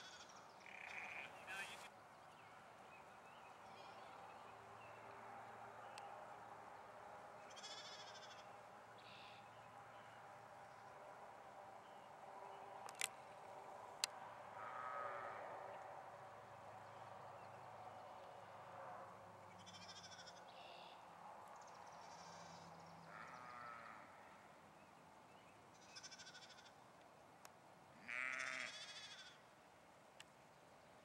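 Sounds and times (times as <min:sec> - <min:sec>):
sheep and lambs bleating: 0:00.0 - 0:01.7, 0:07.5 - 0:08.4, 0:14.6 - 0:15.4, 0:19.6 - 0:20.4, 0:22.1 - 0:24.1, 0:25.8 - 0:26.7, 0:28.0 - 0:29.4.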